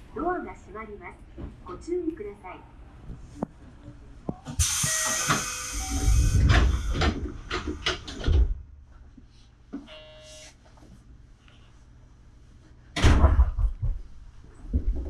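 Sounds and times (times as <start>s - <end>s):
train air hiss: 4.6s - 7.4s
electronic beeping tone: 4.8s - 6.4s
heavy thuds and knocks: 13.0s - 15.0s.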